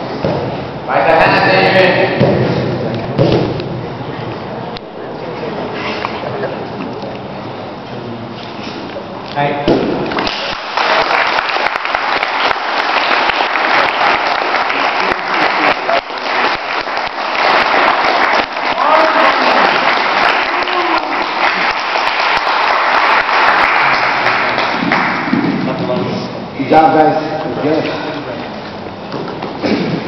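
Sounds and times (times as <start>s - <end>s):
crowd applauding: 10.1s - 25.5s.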